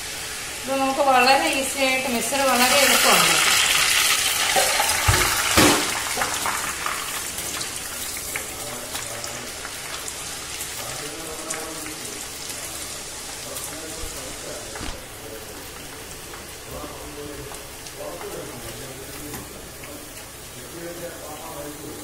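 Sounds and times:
dough sizzling in hot oil: 0:00.0 - 0:22.0.

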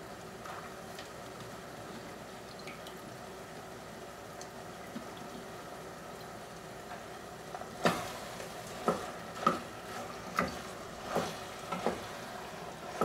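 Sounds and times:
low sizzle: 0:00.0 - 0:13.0.

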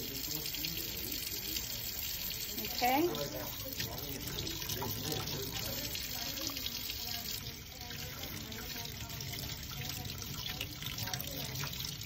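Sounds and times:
tap water running into a sink: 0:00.0 - 0:12.0.

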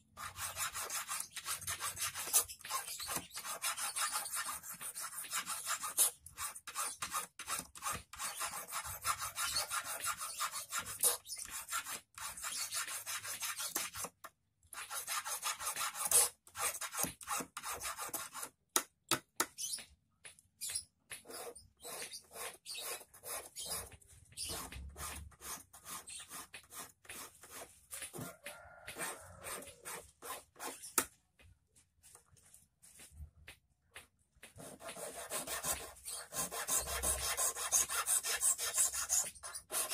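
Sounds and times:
hand file rasping on metal wire: 0:00.2 - 0:14.1, 0:14.8 - 0:18.5, 0:21.2 - 0:27.7, 0:34.8 - 0:39.9.

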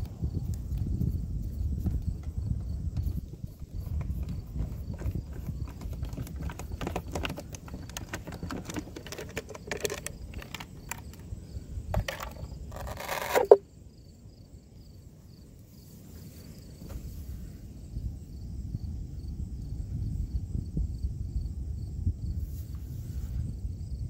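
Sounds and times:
outdoor ambience: 0:00.0 - 0:24.0
hatch cover scraping and snapping: 0:03.8 - 0:11.3, 0:11.9 - 0:13.6.

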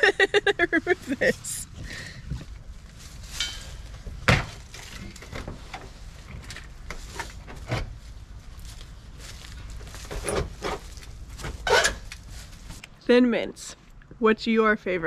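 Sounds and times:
metal clunks and knocks: 0:03.4 - 0:04.6.

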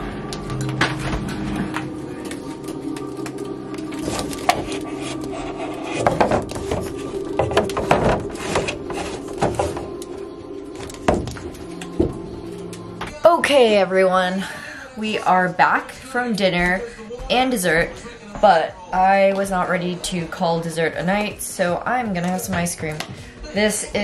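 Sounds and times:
freezer hum: 0:00.0 - 0:14.3
cardboard tubs knocking and scraping: 0:04.0 - 0:10.0.

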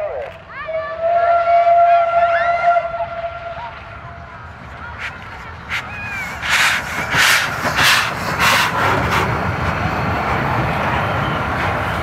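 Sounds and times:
train wheels rumbling: 0:01.0 - 0:12.0
steam exhaust chuffs: 0:04.2 - 0:12.0.

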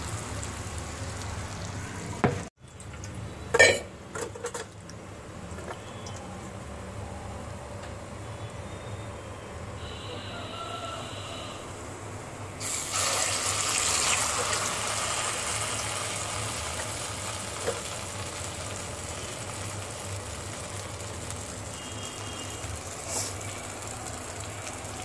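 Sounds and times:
batter sizzling in hot oil: 0:00.0 - 0:02.1, 0:12.6 - 0:25.0.

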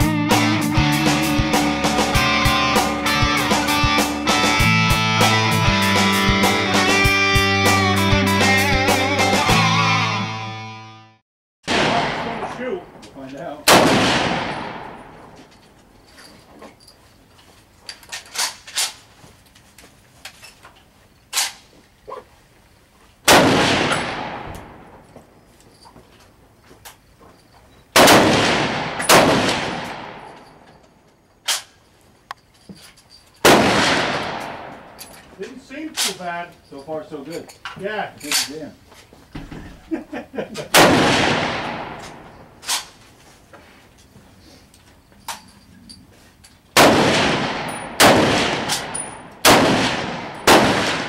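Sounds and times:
rifle shots echoing: 0:11.7 - 0:15.4, 0:23.3 - 0:25.0, 0:28.0 - 0:30.6, 0:33.4 - 0:35.0, 0:40.7 - 0:42.9, 0:46.8 - 0:51.0.

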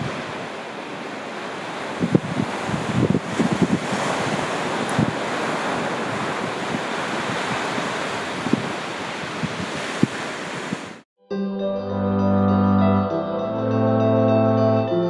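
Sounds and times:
ocean surf breaking: 0:00.0 - 0:11.0
wind buffeting microphone: 0:00.0 - 0:11.0.

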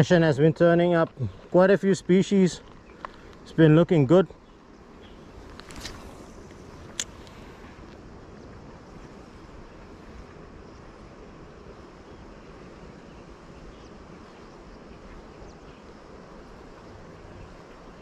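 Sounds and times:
river water flowing: 0:00.0 - 0:18.0
wind buffeting microphone: 0:00.0 - 0:18.0.

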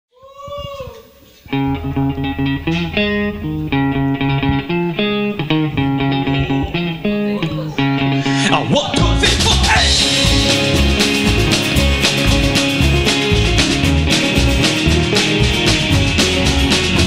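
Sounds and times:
low held bass note: 0:01.5 - 0:08.5
guitar picked melody: 0:01.5 - 0:17.0.

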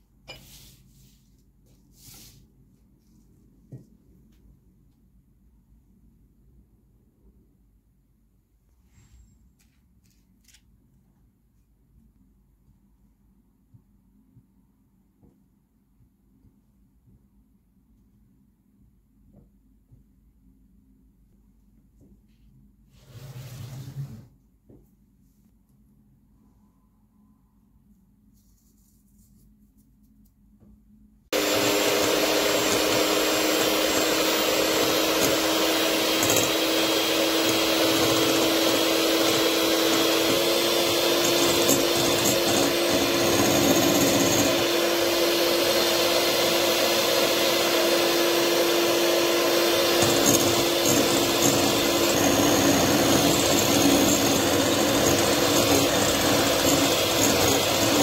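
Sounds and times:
electric hand mixer running: 0:31.3 - 0:58.0.

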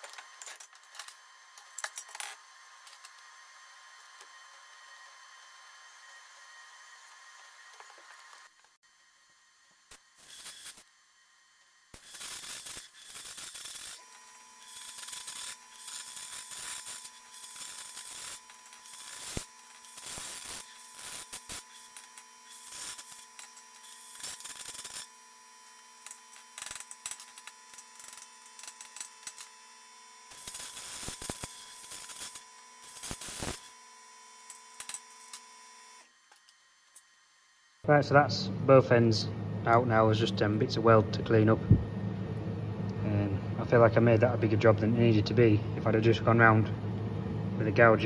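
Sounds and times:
arc gouger crackling hiss: 0:09.8 - 0:10.9, 0:11.9 - 0:28.4, 0:30.3 - 0:33.8.

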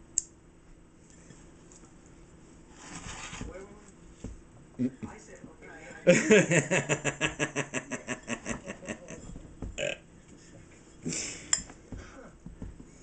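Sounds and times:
man laughing: 0:05.8 - 0:09.3.

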